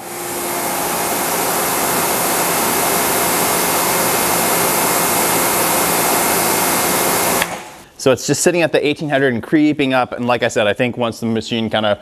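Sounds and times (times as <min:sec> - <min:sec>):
pressure washer motor hum: 0:00.0 - 0:07.9
water jet hissing: 0:00.0 - 0:07.9.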